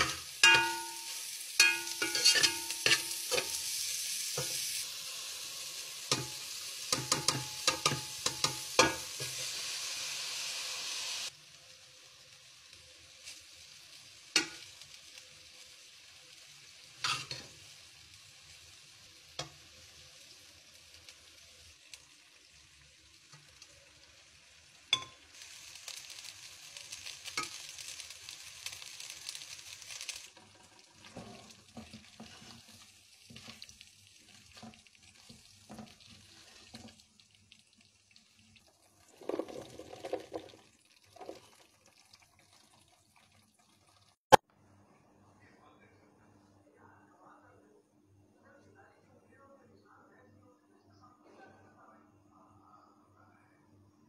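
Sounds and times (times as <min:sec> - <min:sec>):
spoon knocking against pot: 0:00.0 - 0:01.0, 0:06.1 - 0:09.0
rice sizzling in pot: 0:00.0 - 0:44.4
spoon scraping pot: 0:01.6 - 0:03.6, 0:30.5 - 0:33.6.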